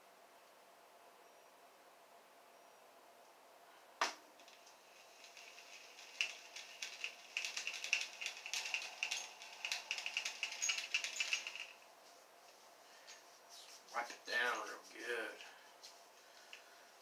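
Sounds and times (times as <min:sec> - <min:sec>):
fishing reel clicking: 0:04.4 - 0:11.8.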